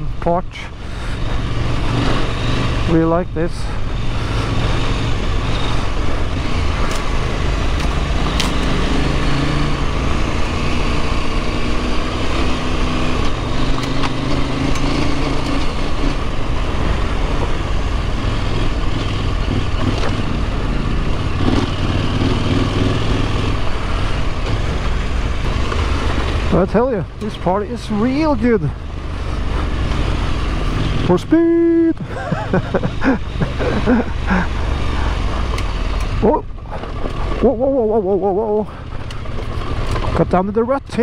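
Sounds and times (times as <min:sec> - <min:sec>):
motorcycle engine running: 0:00.0 - 0:41.0
sharp ticks: 0:35.4 - 0:36.2.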